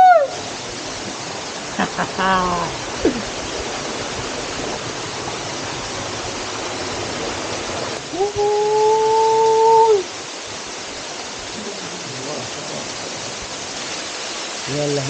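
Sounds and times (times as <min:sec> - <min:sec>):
waterfall rushing: 0:00.0 - 0:15.0
voice-like tone: 0:01.9 - 0:03.3, 0:08.1 - 0:10.1.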